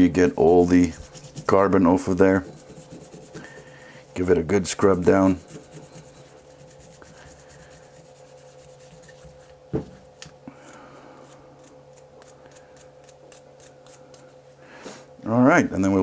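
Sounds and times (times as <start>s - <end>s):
wire brush scrubbing metal: 0.0s - 9.5s.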